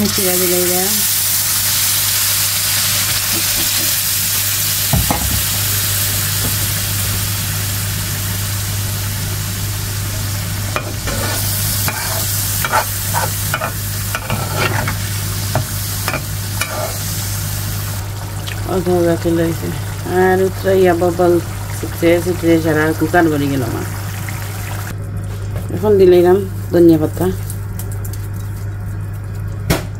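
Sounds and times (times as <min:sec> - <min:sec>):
curry sizzling and bubbling: 0:00.0 - 0:29.9
spatula scraping a pan: 0:10.8 - 0:15.0, 0:15.6 - 0:17.1.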